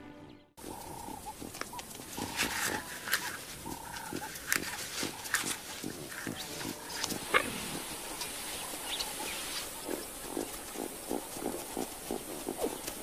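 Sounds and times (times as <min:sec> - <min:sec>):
short animal calls: 0:00.6 - 0:10.7.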